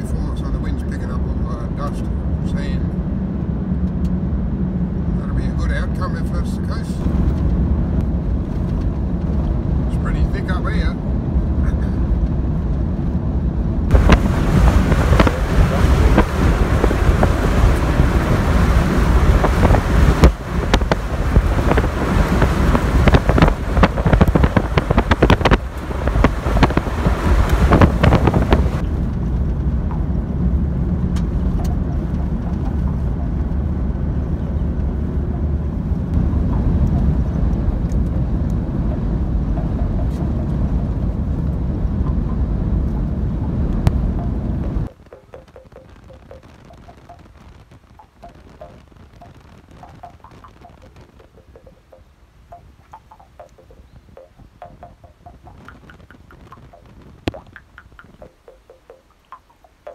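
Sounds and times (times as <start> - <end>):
road and wind noise: 0.0 - 59.9
sharp crackles: 13.9 - 29.9, 44.8 - 59.9.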